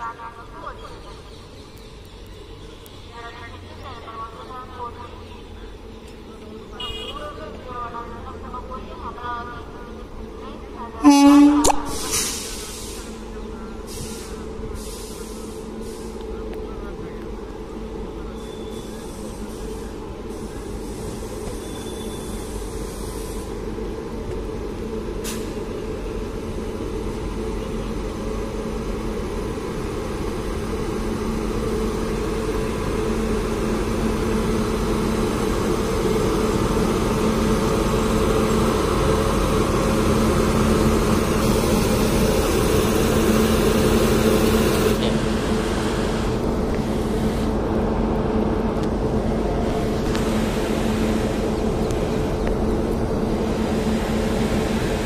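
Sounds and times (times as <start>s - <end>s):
train passing with hum and rumble: 0.0s - 55.0s.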